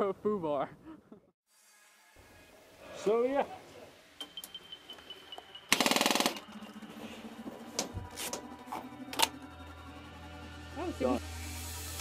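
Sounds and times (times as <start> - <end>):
airsoft gun full-auto burst: 5.7 - 6.5.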